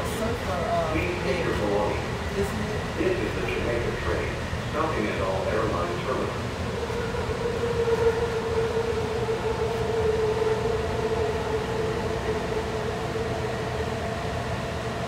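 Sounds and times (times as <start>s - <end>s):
train propulsion whine: 0.0s - 15.0s
low rumble: 0.8s - 8.2s.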